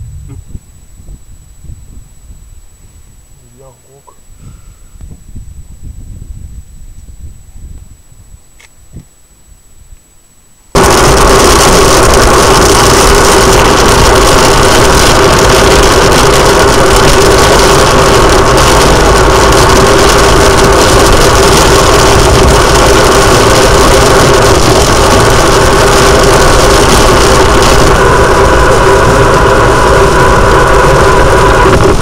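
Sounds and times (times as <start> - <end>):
car engine and road noise: 10.7 - 32.0
rain hitting windshield: 10.8 - 31.0.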